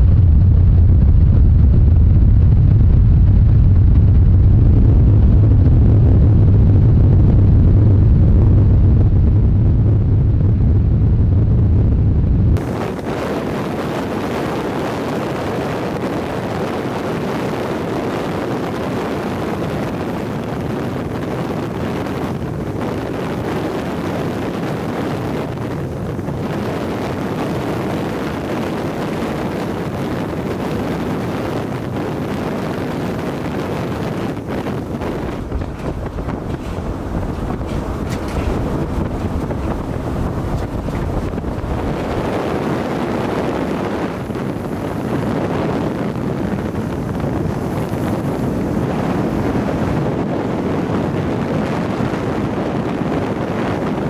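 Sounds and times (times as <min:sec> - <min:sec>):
deep road rumble: 0:00.0 - 0:54.0
wind and road noise hiss: 0:12.6 - 0:54.0.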